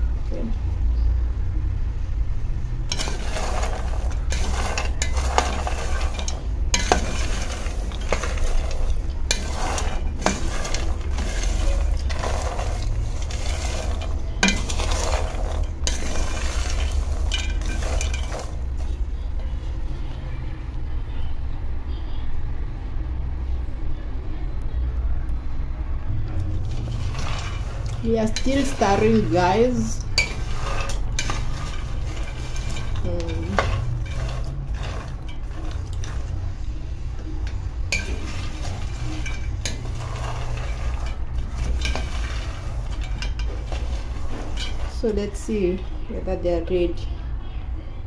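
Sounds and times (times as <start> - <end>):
low steady rumble: 0.0 - 48.0
peanuts rattling in a pan: 2.8 - 19.1, 26.4 - 47.0.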